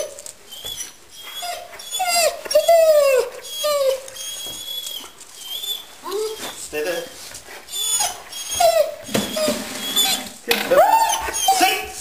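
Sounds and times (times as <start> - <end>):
dog whining: 0.0 - 12.0
dog falling cries: 1.9 - 12.0.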